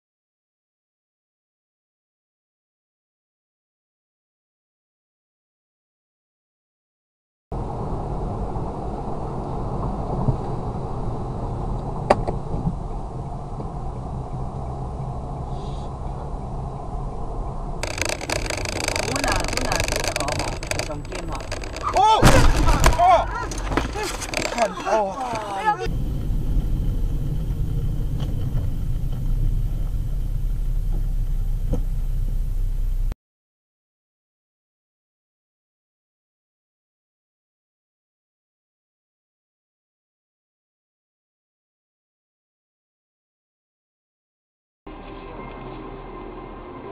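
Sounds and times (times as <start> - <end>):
car driving on highway: 7.6 - 33.2.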